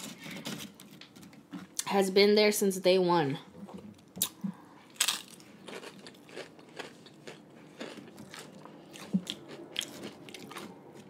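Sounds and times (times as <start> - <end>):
crunchy chewing: 4.0 - 11.0
crunchy bite into chip: 5.0 - 10.8.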